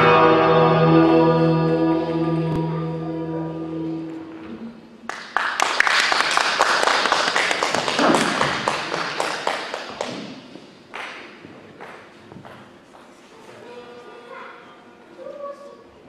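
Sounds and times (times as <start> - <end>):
acoustic guitar chord: 0.0 - 4.8
audience applauding: 5.1 - 11.2.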